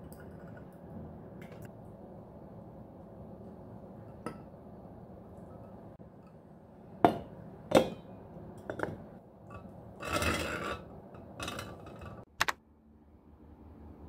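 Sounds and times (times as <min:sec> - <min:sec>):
glass clinking: 0:07.0 - 0:10.8.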